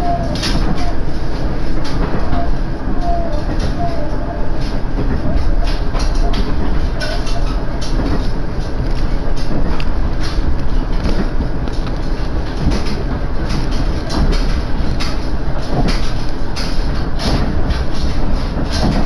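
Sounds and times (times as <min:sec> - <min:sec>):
train engine and wheels rumbling: 0:00.0 - 0:19.0
clicks and rattles: 0:04.6 - 0:19.0.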